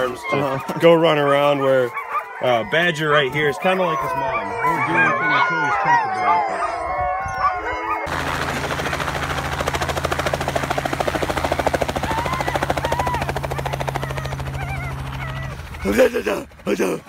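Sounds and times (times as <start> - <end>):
helicopter engine hum: 3.8 - 17.0
rotor blades beating: 8.0 - 17.0.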